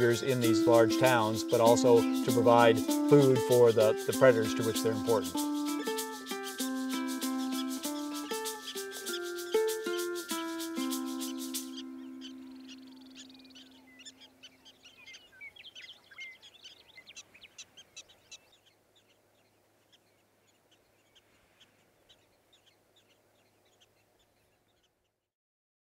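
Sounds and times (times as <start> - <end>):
soundtrack music chord: 0.0 - 13.2
high-pitched animal chirps: 5.4 - 16.5.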